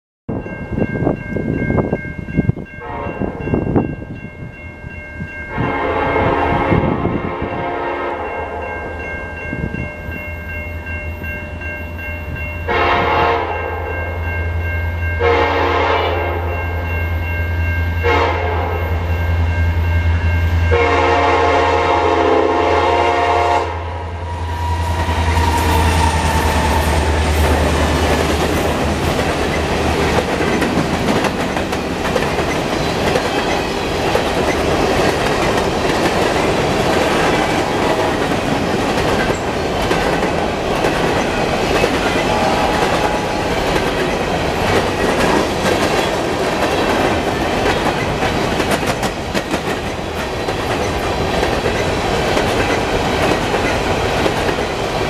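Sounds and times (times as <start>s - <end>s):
crossing bell ringing: 0.3s - 55.0s
locomotive horn: 2.8s - 3.4s, 5.5s - 8.6s, 12.7s - 13.9s, 15.2s - 16.6s, 18.0s - 19.1s, 20.6s - 28.2s, 42.0s - 43.7s.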